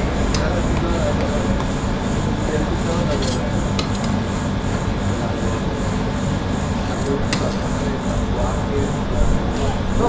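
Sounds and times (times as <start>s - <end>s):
steady background noise: 0.0s - 10.0s.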